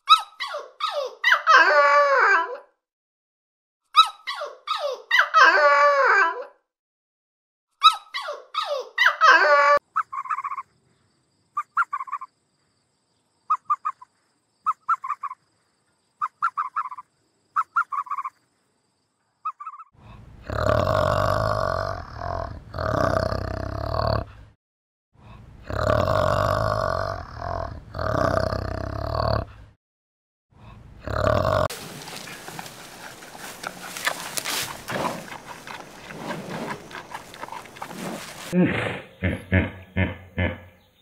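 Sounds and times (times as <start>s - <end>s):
dogs whining and yelping: 0.0s - 2.7s, 4.0s - 6.6s, 7.8s - 10.6s
ape deep grunting: 20.4s - 24.4s, 25.6s - 29.6s, 31.0s - 31.7s, 33.2s - 40.8s.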